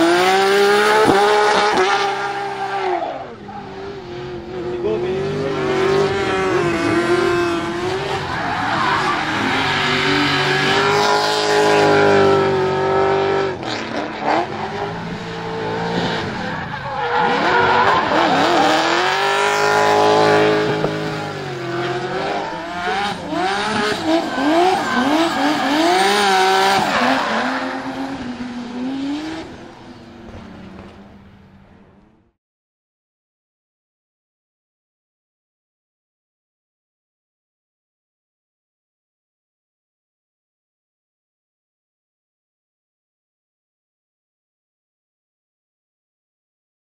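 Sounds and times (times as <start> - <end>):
car engine revving hard: 0.0 - 3.0, 3.7 - 30.0
tyres screeching: 6.4 - 11.0, 20.5 - 28.2.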